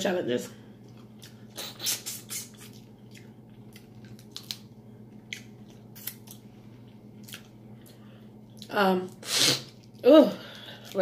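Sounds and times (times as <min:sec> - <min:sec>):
wet chewing and smacking: 0:00.8 - 0:08.7.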